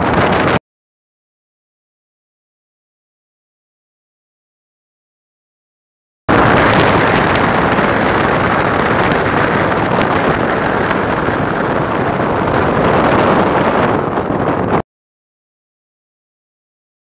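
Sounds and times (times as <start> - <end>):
wind blowing across microphone: 0.0 - 0.6, 6.3 - 14.8.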